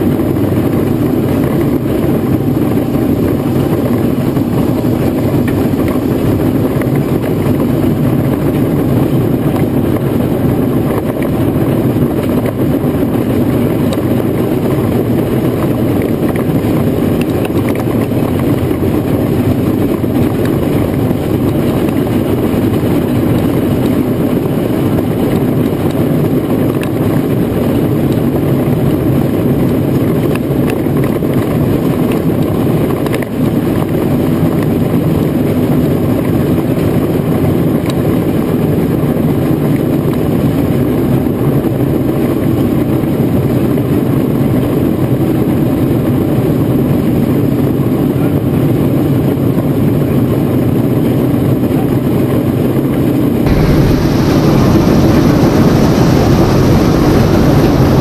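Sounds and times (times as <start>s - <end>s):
steam roller rumbling: 0.2s - 13.1s, 53.5s - 58.0s.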